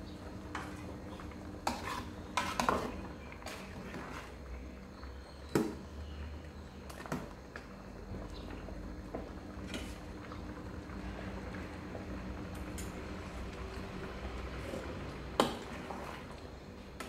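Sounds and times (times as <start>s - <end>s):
ladle scraping metal pot: 1.6s - 4.4s.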